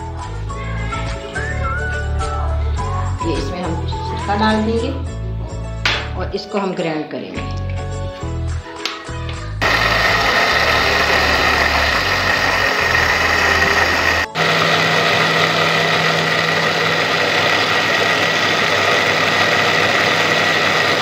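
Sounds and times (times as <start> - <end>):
blender motor grinding: 9.6 - 21.0.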